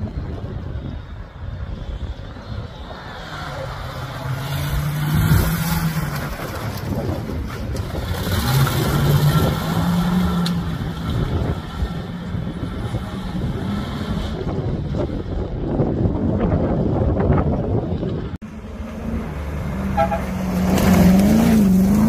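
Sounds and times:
buggy engine revving hard: 3.4 - 15.0, 18.9 - 22.0.

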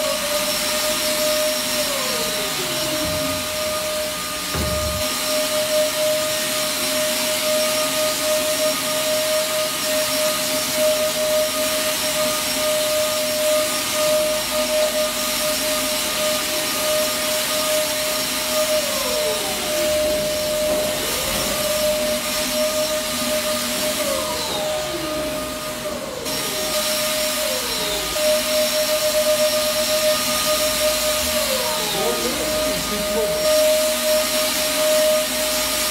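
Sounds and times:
electric fogging sprayer running: 0.0 - 35.9
short falling whines: 2.6 - 5.8.

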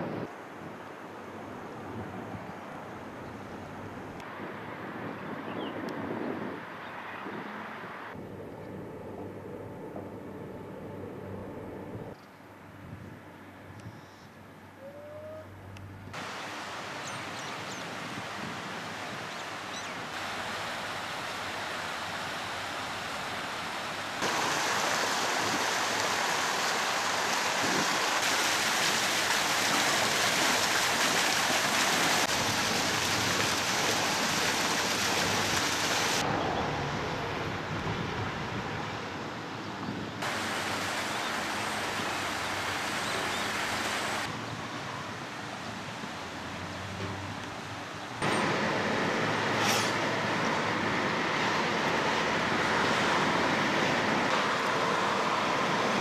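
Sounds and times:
steady outdoor noise: 0.0 - 56.0
fountain jet splashing: 16.2 - 36.2, 40.2 - 56.0.

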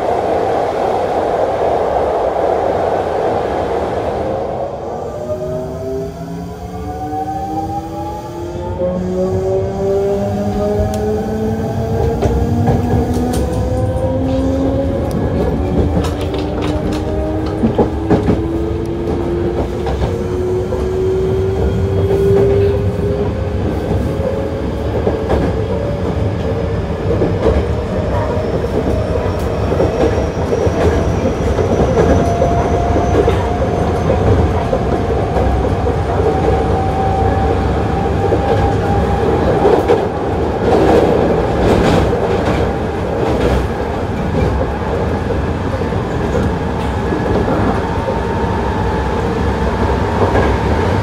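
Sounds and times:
wheels rumbling on rails: 0.0 - 51.0
rail joint clicks: 10.2 - 51.0.

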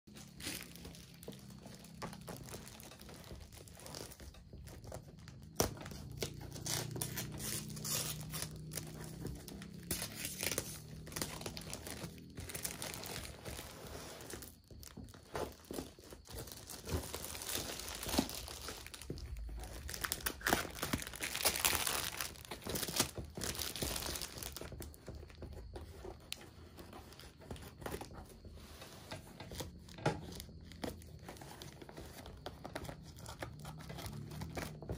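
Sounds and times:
plastic wrap crinkling and tearing: 0.1 - 25.3.

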